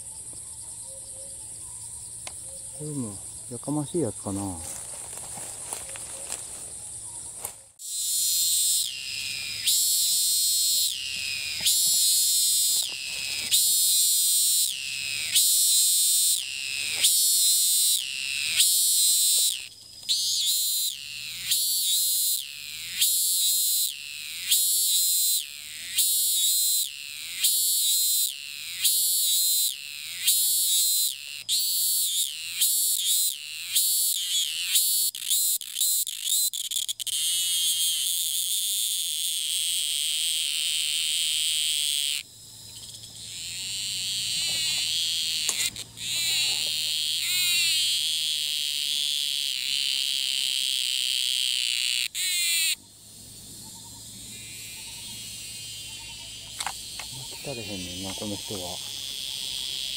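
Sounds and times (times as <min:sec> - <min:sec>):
cicada calling: 0:00.0 - 0:59.9.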